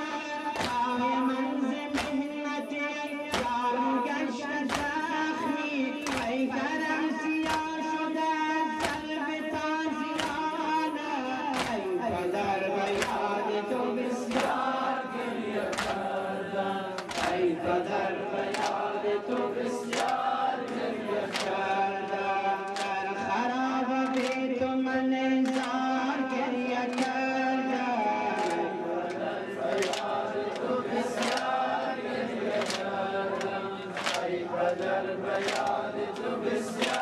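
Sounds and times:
group of voices chanting: 11.5 - 37.0.

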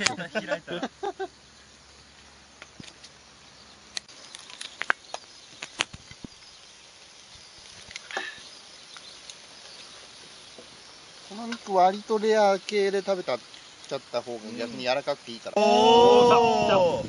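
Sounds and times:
meat sizzling on charcoal grill: 0.0 - 17.0
sharp pops and clicks: 2.6 - 3.2, 3.9 - 6.4, 7.6 - 9.8, 11.4 - 12.8.

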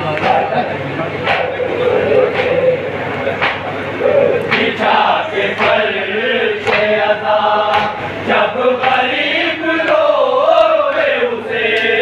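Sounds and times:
chest-beating slaps: 2.3 - 3.8, 4.4 - 4.9, 6.6 - 7.0
men chanting in unison: 4.0 - 12.0.

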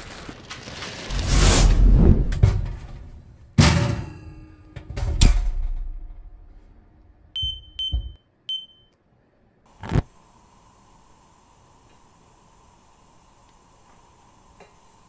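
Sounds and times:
loud metal clunks: 2.2 - 6.6
short high beeps: 7.4 - 8.9.

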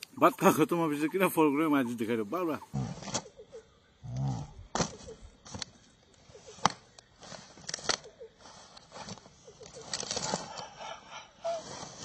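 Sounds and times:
faint chirps: 0.0 - 12.0
banana leaves crackling: 8.8 - 10.8.

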